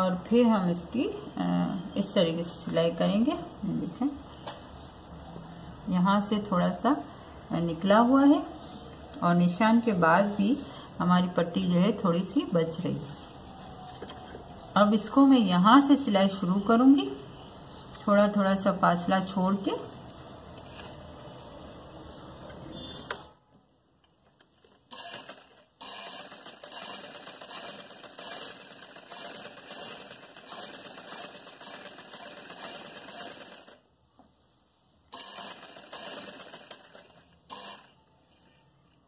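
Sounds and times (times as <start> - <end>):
sewing machine stitching: 24.9 - 33.8, 35.1 - 39.0.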